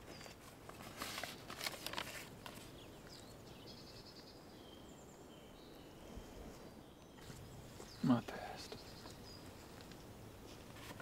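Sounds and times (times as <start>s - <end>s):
paper rustling: 0.0s - 2.7s, 9.7s - 11.0s
faint bird chirps: 2.6s - 9.6s.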